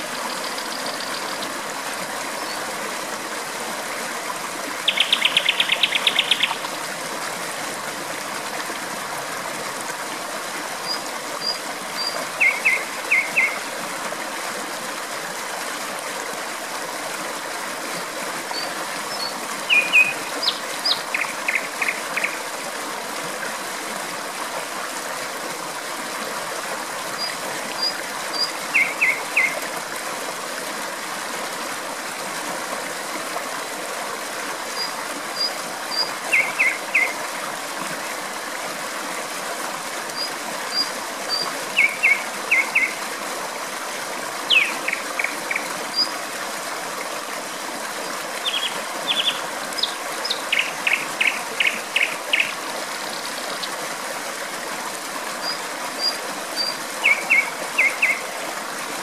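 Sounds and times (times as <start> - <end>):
stream water flowing: 0.0 - 59.0
songbird singing: 0.1 - 1.5, 4.8 - 6.7, 10.8 - 13.6, 18.5 - 22.4, 27.2 - 29.6, 34.8 - 37.1, 40.2 - 43.0, 44.5 - 46.1, 48.4 - 53.7, 55.4 - 58.2.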